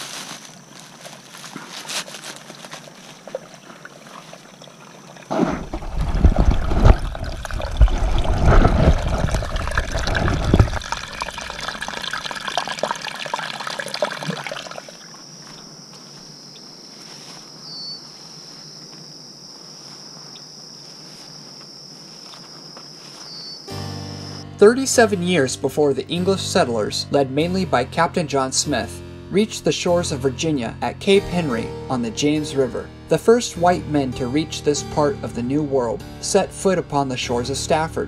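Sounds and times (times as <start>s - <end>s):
high insect drone: 0.0s - 24.6s
water trickling: 2.3s - 15.7s.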